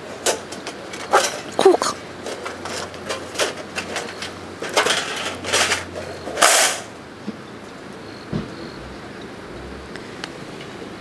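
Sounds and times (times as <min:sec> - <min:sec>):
metal plates clicking and scraping: 0:00.0 - 0:06.9.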